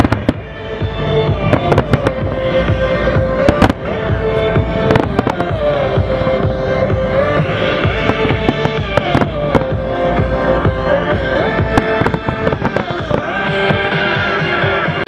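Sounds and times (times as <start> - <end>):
fireworks bangs: 0.0 - 0.6, 1.3 - 2.8, 3.4 - 6.3, 7.8 - 9.8, 11.4 - 13.9
music playing: 0.0 - 15.0.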